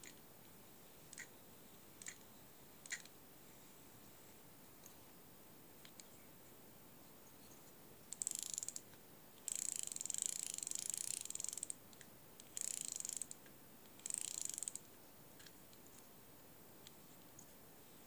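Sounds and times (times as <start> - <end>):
fishing reel ticking whirr: 8.1 - 8.8, 9.4 - 11.8, 12.4 - 13.4, 14.0 - 14.8.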